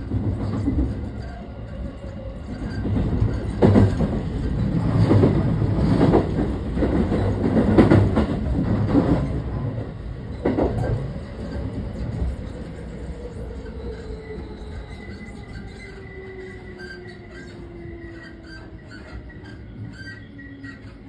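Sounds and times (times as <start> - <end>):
wheels clacking over track joints: 0.0 - 9.5
wheels rumbling on rail: 0.0 - 21.0.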